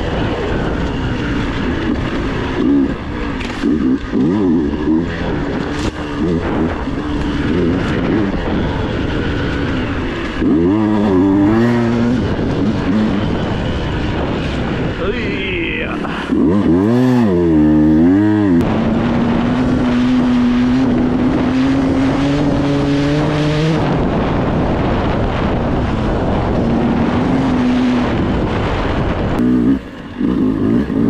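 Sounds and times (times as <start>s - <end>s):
motorcycle engine revving: 0.0s - 31.0s.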